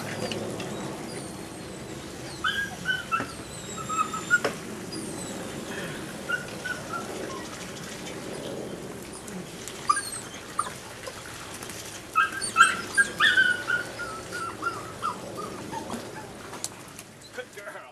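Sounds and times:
puppy whining and yipping: 0.0s - 7.7s, 9.1s - 11.2s, 12.1s - 16.5s.

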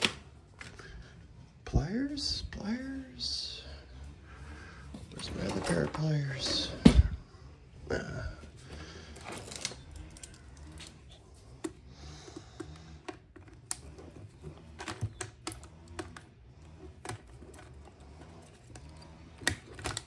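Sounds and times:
hand tools clicking on parts: 8.6s - 20.0s.

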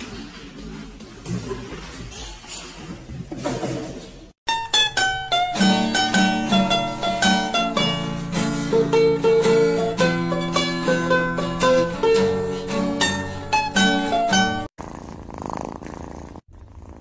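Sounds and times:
plucked string instrument tune: 4.5s - 14.7s.

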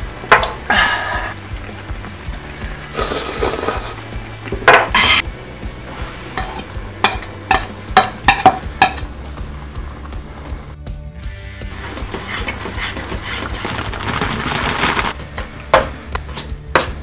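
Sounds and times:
broth bubbling in a pan: 0.0s - 10.8s
spoon tapping against a bowl: 7.0s - 9.1s
utensil scraping food: 11.7s - 15.2s.

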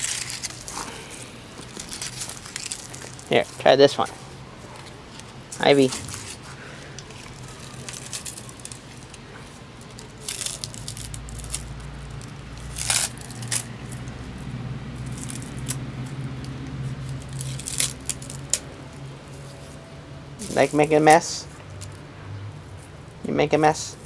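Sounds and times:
dry leaves crinkling and rustling: 0.0s - 19.8s.

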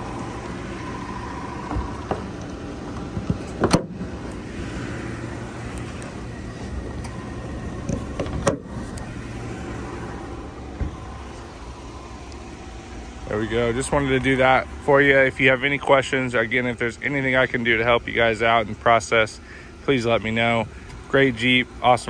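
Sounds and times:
steady low hum: 0.0s - 22.0s
hood latches clicking: 1.6s - 4.4s, 7.8s - 9.1s.

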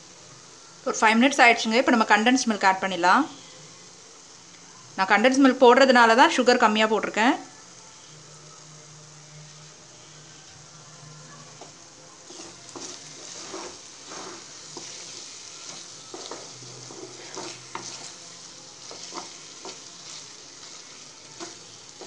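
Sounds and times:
mixture sizzling in a pan: 0.0s - 22.0s
wooden spatula scraping a pan: 12.3s - 21.6s.

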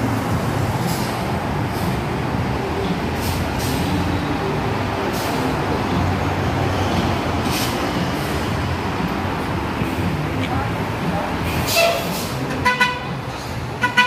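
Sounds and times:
bus engine rumble: 0.0s - 14.0s
air brake hisses: 3.2s - 4.0s, 7.5s - 7.8s, 11.5s - 12.4s.

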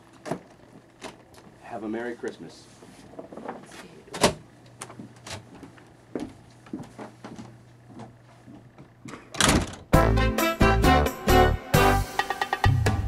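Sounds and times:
footsteps: 4.8s - 9.0s.

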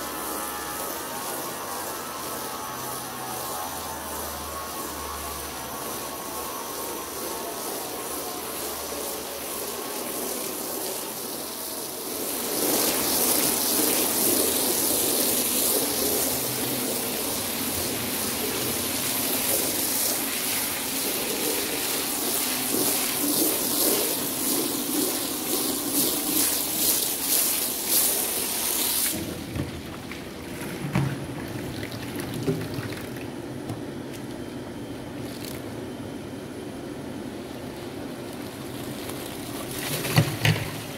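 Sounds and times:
hose spraying water onto rug: 0.0s - 31.4s, 37.4s - 40.9s
water pouring into plastic can: 9.3s - 34.4s, 35.1s - 35.8s, 37.3s - 40.9s.

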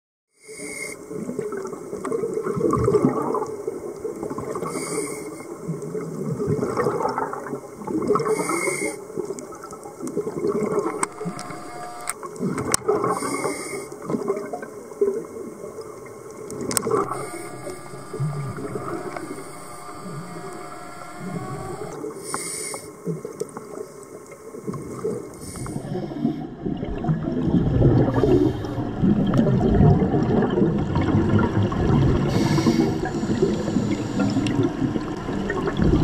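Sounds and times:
regulator inhale hiss: 0.4s - 1.1s, 4.6s - 5.6s, 8.2s - 9.0s, 10.8s - 12.2s, 13.0s - 14.1s, 16.8s - 23.1s, 25.3s - 26.5s, 32.3s - 34.7s.

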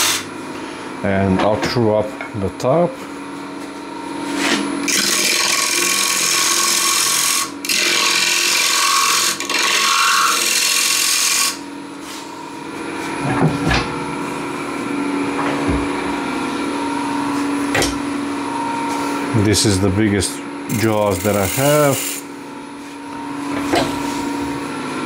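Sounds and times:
wood lathe gouge cutting hiss: 0.0s - 0.2s, 20.7s - 22.2s
lathe humming: 3.2s - 13.2s, 13.8s - 25.0s.

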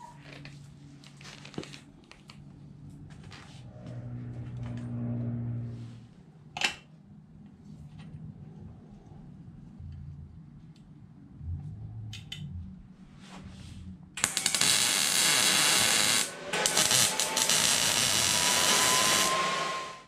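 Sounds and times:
welding arc crackling: 14.2s - 20.0s.

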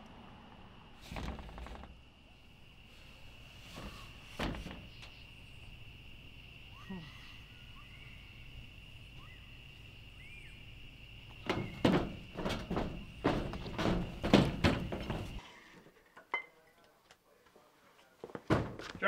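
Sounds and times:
insect drone: 0.0s - 15.7s
faint bird chirps: 3.6s - 5.8s, 6.6s - 10.9s
footsteps on metal roof: 11.3s - 15.4s, 18.2s - 19.0s.

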